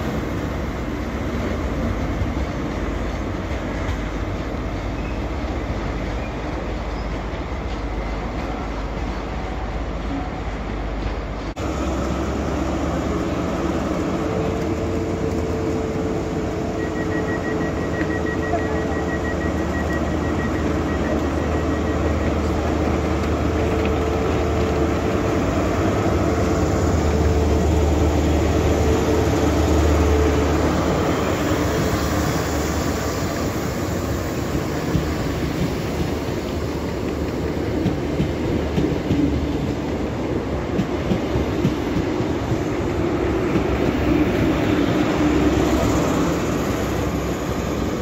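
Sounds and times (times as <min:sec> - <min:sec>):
diesel train engine drone: 0:00.0 - 0:48.0.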